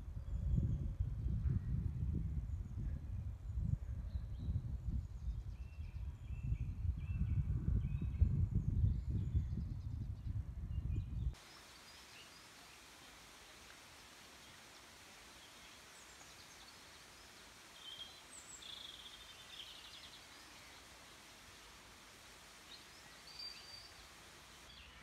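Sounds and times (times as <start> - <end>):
wind buffeting microphone: 0.0 - 11.4
faint woodland background: 0.0 - 25.0.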